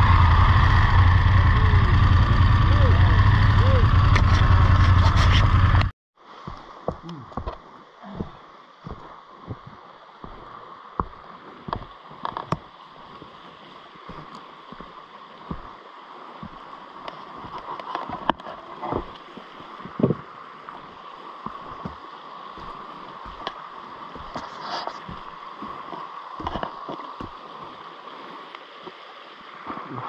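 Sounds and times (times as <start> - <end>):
stream gurgling: 0.0 - 30.0
water clicks and splashes: 6.4 - 30.0.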